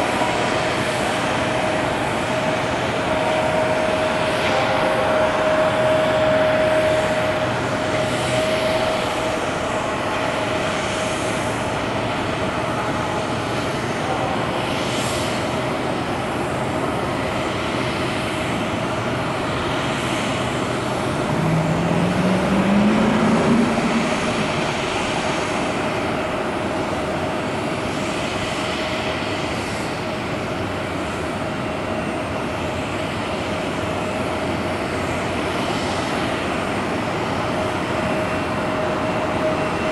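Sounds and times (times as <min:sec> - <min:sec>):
jet engines roaring: 0:00.0 - 0:39.9
low rising tone: 0:20.9 - 0:25.3.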